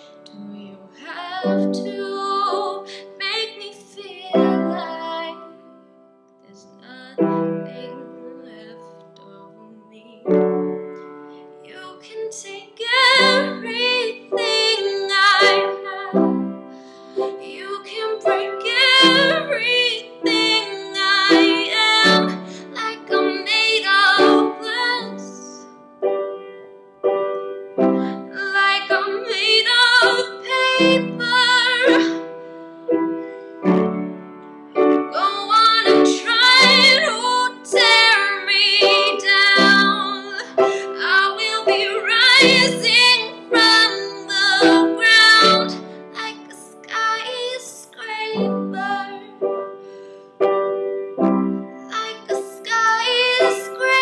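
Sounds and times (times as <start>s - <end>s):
girl singing pop ballad: 0.0s - 5.6s, 6.5s - 10.4s, 11.6s - 25.7s, 27.8s - 32.7s, 35.0s - 50.1s, 51.8s - 54.0s
keyboard playing slow chords: 15.6s - 17.4s, 24.4s - 29.0s, 30.0s - 35.2s, 49.4s - 52.0s.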